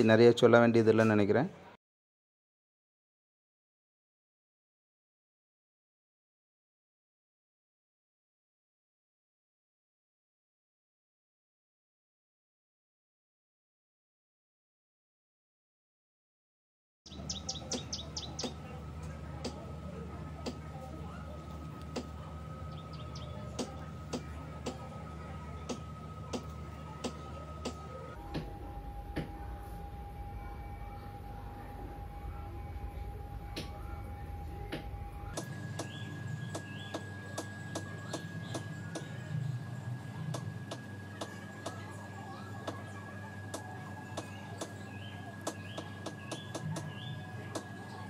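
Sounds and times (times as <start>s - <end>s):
small bird chirping: 17.1s - 18.7s, 22.7s - 24.8s, 35.8s - 39.2s
steady low hum: 17.1s - 48.0s.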